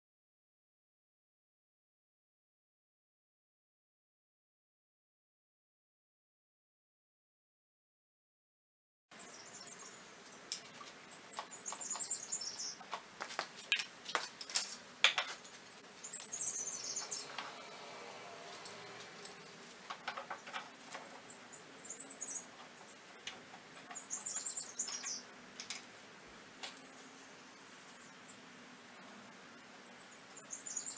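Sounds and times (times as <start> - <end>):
small birds chirping: 9.1 - 14.7, 15.3 - 25.9, 26.6 - 30.9.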